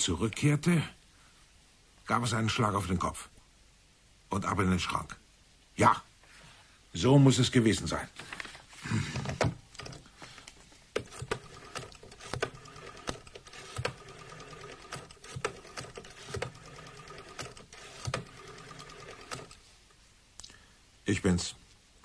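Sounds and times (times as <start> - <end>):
typewriter keys clacking: 11.0 - 19.6.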